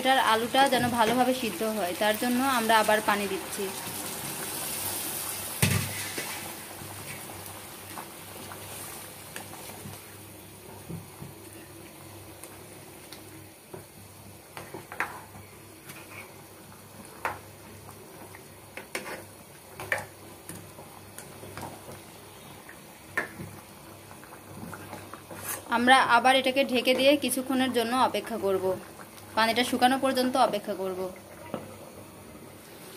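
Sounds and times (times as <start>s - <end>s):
curry bubbling: 14.4s - 32.9s.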